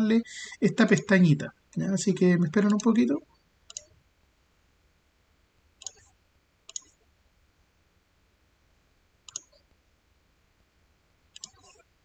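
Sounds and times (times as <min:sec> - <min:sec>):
faint room hiss: 0:00.0 - 0:12.0
computer mouse clicking: 0:02.6 - 0:03.0, 0:03.7 - 0:04.0, 0:05.8 - 0:07.0, 0:09.3 - 0:09.7, 0:11.4 - 0:11.8.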